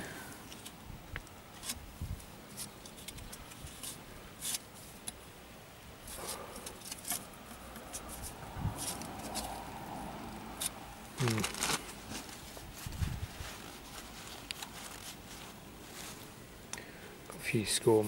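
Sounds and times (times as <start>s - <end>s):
gloved hand handling metal parts: 0.4s - 5.2s, 6.0s - 9.6s, 10.5s - 16.4s.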